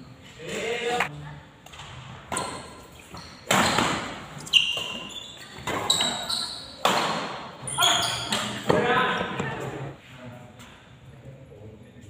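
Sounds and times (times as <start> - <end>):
rackets hitting shuttlecock: 1.6 - 7.5.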